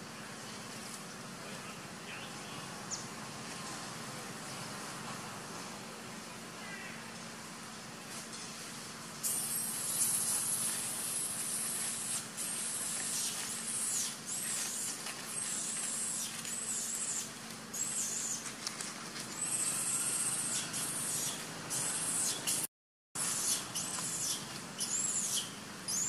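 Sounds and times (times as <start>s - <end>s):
insect chorus buzzing: 9.2s - 18.4s
arching insect calls: 9.2s - 18.6s, 19.3s - 22.6s, 23.2s - 26.0s.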